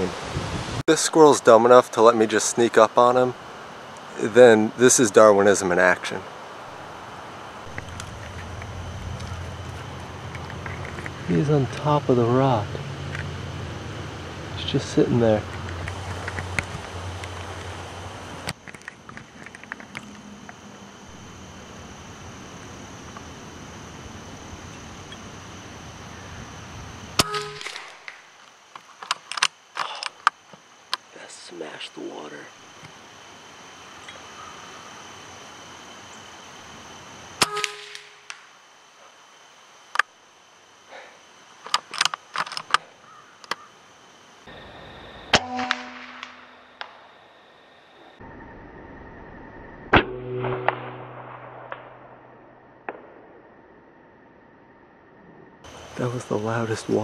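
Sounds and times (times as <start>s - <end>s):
wind rumbling on microphone: 0.0s - 0.8s, 7.6s - 11.8s
air rifle shot: 27.2s - 28.2s, 37.4s - 38.4s, 49.9s - 53.3s.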